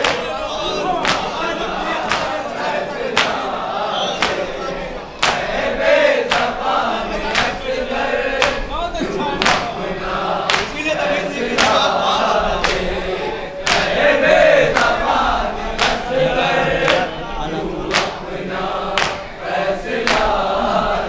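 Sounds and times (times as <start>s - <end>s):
hands slapping chests: 0.0s - 7.7s, 8.4s - 12.0s, 12.6s - 13.0s, 13.6s - 15.0s, 15.7s - 17.1s, 17.9s - 19.4s, 20.0s - 20.6s
men chanting together: 0.0s - 21.0s.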